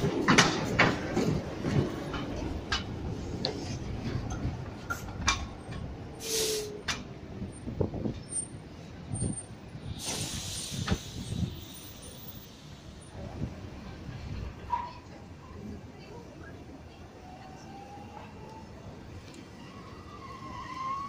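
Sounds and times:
wheels clicking over rail joints: 0.0 - 9.6
tram rumbling: 0.0 - 21.0
short hisses: 6.2 - 6.8, 10.0 - 11.5.

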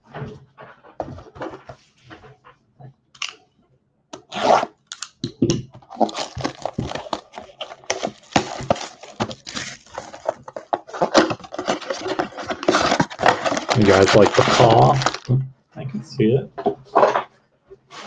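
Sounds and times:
cardboard flap opening: 5.8 - 15.3
shrink wrap tearing and crinkling: 5.8 - 15.3.

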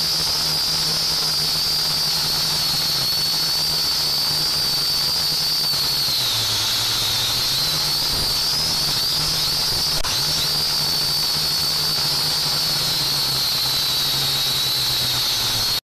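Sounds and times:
drone motors whining: 0.0 - 15.8.

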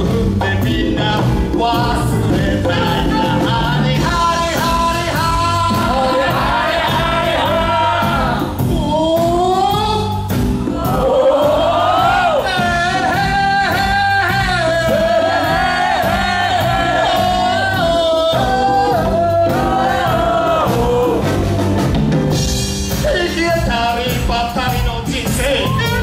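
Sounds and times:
live band playing: 0.0 - 26.0
man singing long notes: 10.8 - 21.4.

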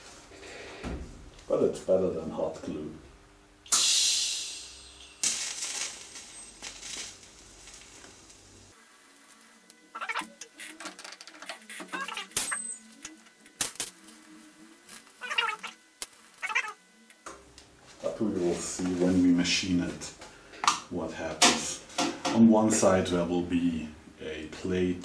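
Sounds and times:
welding arc hiss and buzz: 0.0 - 25.0
crackles and pops: 3.7 - 14.2, 14.9 - 17.7.

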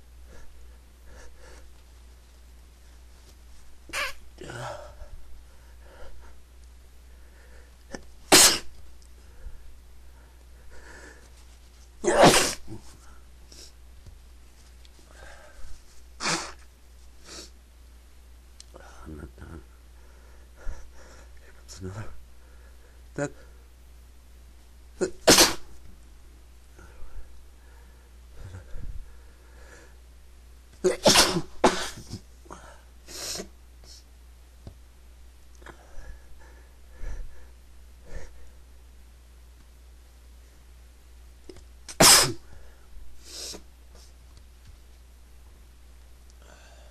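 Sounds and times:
man sneezing: 3.9 - 5.1, 7.9 - 8.8, 12.0 - 13.0, 16.2 - 16.6, 25.0 - 25.7, 30.8 - 32.2, 41.9 - 42.5
breathy sound: 46.4 - 46.9.

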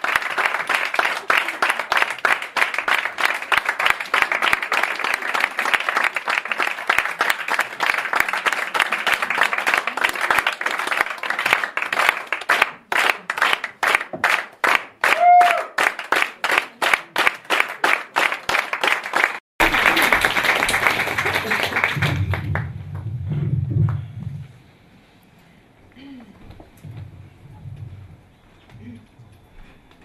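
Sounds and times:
audience applauding: 0.0 - 23.1
rhythmic clapping in unison: 0.0 - 24.0.

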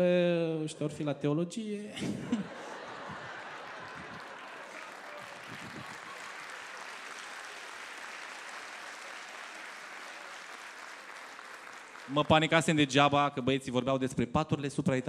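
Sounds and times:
audience applauding: 2.4 - 12.9.

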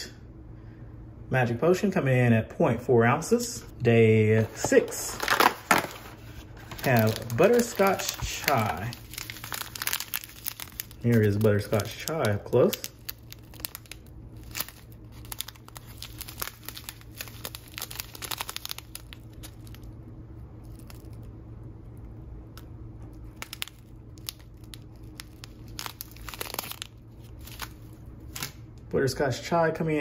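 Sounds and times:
plastic pouch crinkling: 4.4 - 20.0, 20.6 - 21.3, 23.2 - 28.6.

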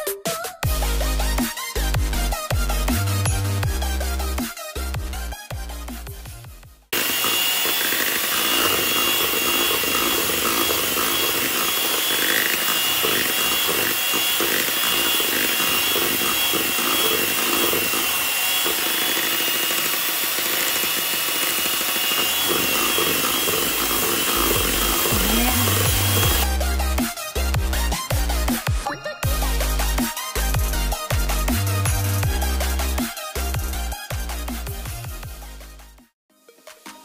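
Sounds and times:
electric hand mixer whipping cream: 7.0 - 30.9.

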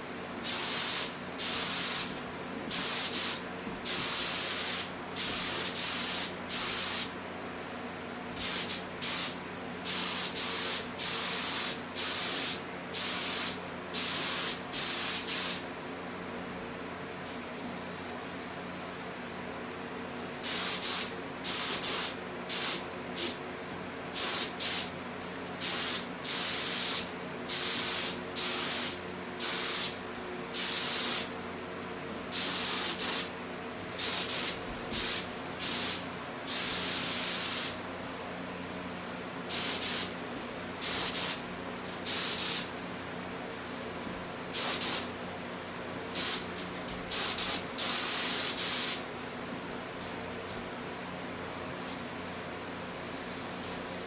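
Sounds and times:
spray gun hissing: 0.4 - 7.1, 8.4 - 15.6, 20.4 - 23.4, 24.2 - 24.9, 32.3 - 33.3, 34.0 - 37.8, 39.5 - 41.4, 42.0 - 42.7, 44.5 - 46.5, 47.1 - 49.0.

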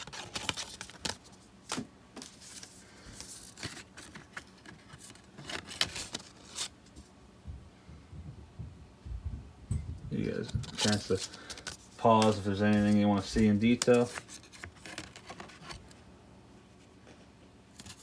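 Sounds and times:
discs and sleeves handled: 0.0 - 7.0, 10.3 - 16.0, 16.7 - 18.0
low rumble: 7.5 - 10.7.

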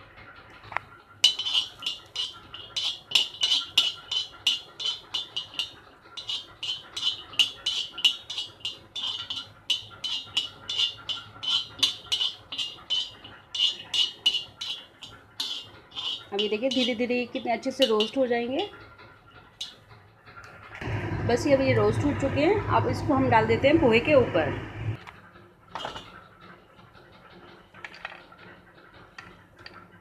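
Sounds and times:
metal spatula clinking on iron pan: 1.2 - 18.7.

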